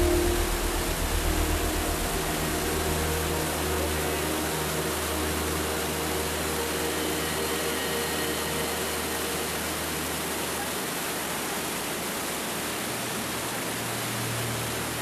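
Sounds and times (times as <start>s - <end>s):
low rumble: 0.0s - 5.5s
waterfall roaring through gorge: 0.0s - 15.0s.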